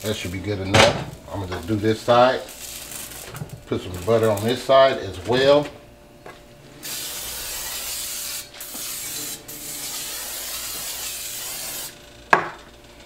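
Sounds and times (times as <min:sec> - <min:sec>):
aerosol spray hissing: 0:06.8 - 0:11.9.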